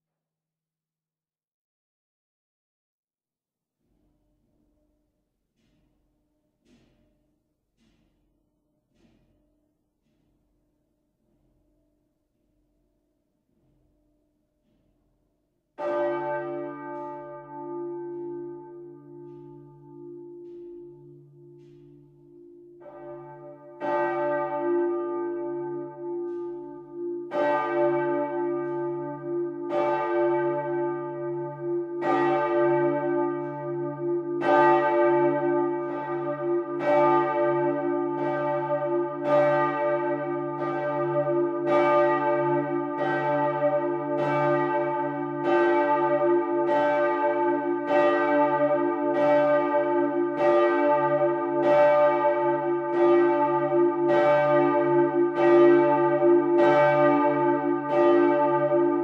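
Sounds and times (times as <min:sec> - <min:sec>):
church bells ringing: 0:15.8 - 0:59.0.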